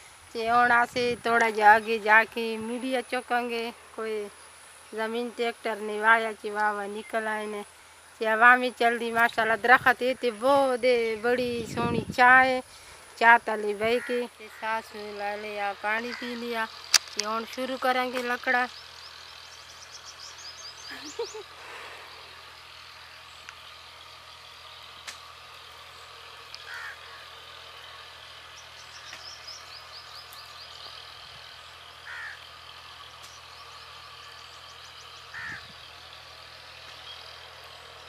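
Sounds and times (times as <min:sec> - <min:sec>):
outdoor hiss: 0:00.0 - 0:38.0
crows cawing: 0:13.9 - 0:14.8, 0:26.6 - 0:27.5, 0:32.0 - 0:32.5, 0:35.3 - 0:35.8
high bird chirps: 0:18.7 - 0:21.5, 0:28.5 - 0:32.4.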